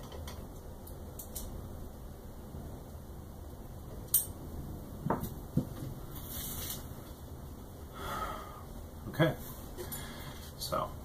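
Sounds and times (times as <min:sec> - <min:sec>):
low background noise: 0:00.0 - 0:11.0
soft rustling: 0:05.7 - 0:07.2.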